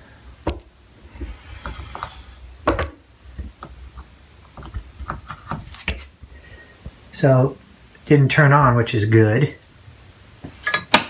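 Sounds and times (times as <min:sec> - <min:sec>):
sharp clicks and knocks: 0:00.4 - 0:00.7.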